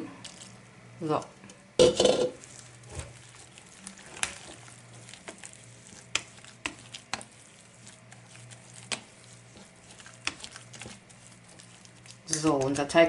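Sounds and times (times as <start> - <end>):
whisk stirring batter: 2.4 - 13.0
whisk clicking against bowl: 4.1 - 13.0.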